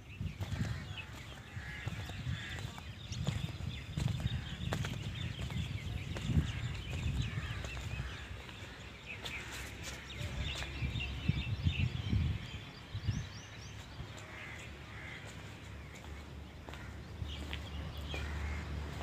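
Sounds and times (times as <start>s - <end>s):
small birds chirping: 0.0s - 19.0s
low irregular thumps and rumble: 0.3s - 8.2s.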